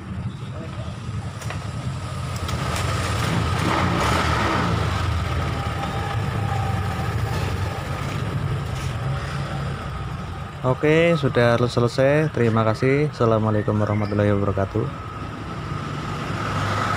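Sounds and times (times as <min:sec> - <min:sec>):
scooter engine revving: 0:01.8 - 0:08.7.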